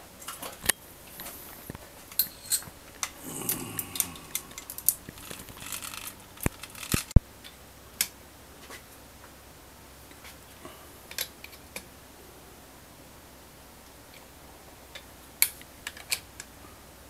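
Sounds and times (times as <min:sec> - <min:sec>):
metal parts and tools clinking: 0:02.1 - 0:02.7.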